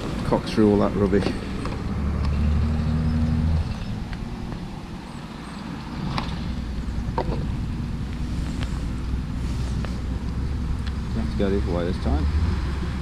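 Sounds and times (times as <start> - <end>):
low engine drone: 0.0 - 13.0.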